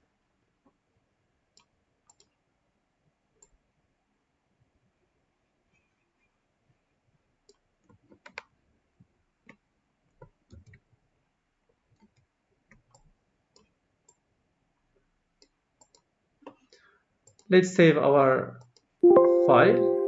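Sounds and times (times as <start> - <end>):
computer mouse clicks: 1.5 - 2.4, 7.4 - 8.5, 10.2 - 10.9, 11.9 - 14.2, 15.4 - 17.5, 18.6 - 18.9.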